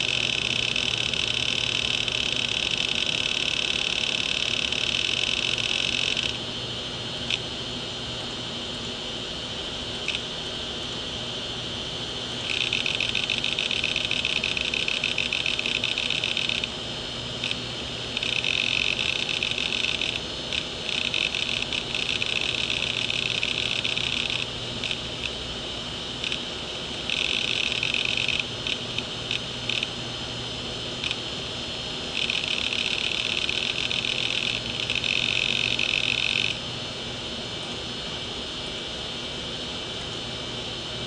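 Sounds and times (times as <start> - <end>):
hard disk head seeking chatter: 0.0 - 41.0
spindle motor hum: 0.0 - 41.0
hard disk clicks: 12.5 - 16.7, 17.4 - 25.4.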